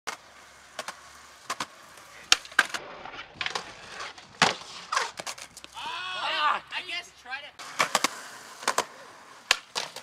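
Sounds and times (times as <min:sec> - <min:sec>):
skateboard clacks: 0:00.1 - 0:05.8, 0:07.6 - 0:10.0
skateboard grinding on ledge: 0:00.1 - 0:05.8, 0:07.6 - 0:10.0
skateboard rolling on concrete: 0:00.1 - 0:06.8, 0:07.6 - 0:10.0.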